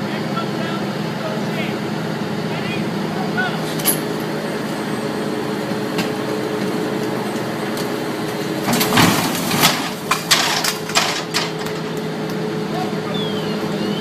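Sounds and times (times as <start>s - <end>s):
engine hum: 0.0s - 14.0s
truck crashing onto wheels: 8.5s - 12.0s
metal bangs and clanks: 8.6s - 11.9s.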